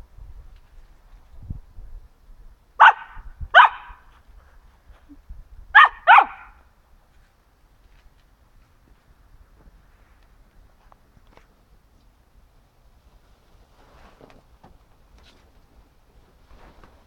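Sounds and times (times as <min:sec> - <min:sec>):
dog barking: 0:02.8 - 0:04.0, 0:05.8 - 0:06.6.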